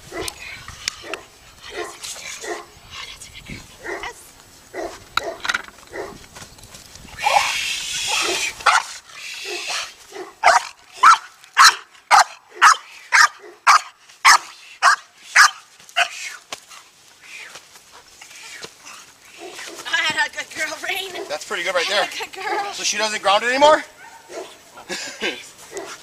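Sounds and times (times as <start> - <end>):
dog barking: 1.0 - 2.7, 3.8 - 4.1, 4.7 - 6.2, 8.1 - 8.9, 9.5 - 16.2, 19.4 - 19.8, 21.1 - 21.4, 24.0 - 24.6, 25.7 - 26.0.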